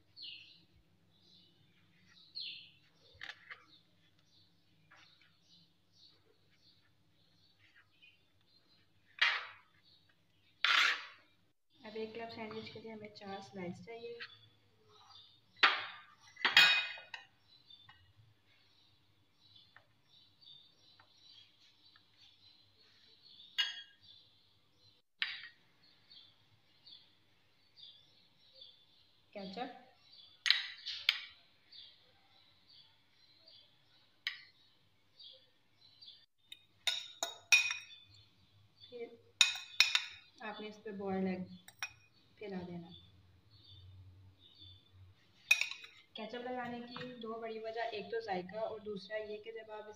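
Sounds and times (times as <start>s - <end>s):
cutlery clinking on dishes: 45.4s - 46.0s.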